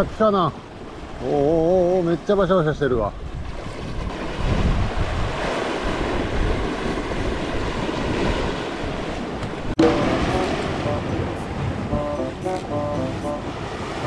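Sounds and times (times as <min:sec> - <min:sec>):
waves washing over rocks: 0:00.0 - 0:14.0
wind buffeting microphone: 0:03.0 - 0:12.1.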